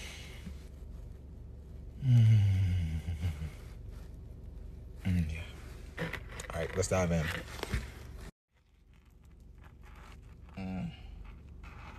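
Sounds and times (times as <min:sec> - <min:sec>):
man humming mmm: 0:02.0 - 0:03.6.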